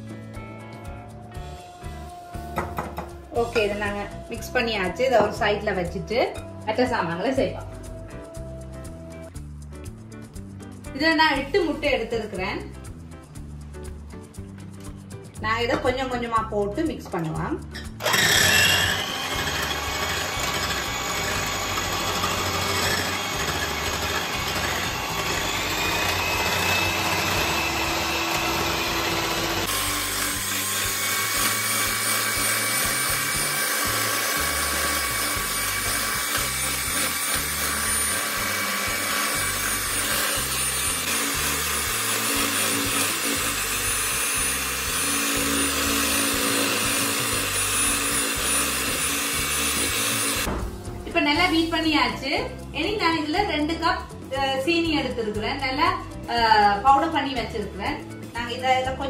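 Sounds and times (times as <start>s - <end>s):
electric hand mixer whisking: 1.8s - 5.7s, 18.0s - 50.5s.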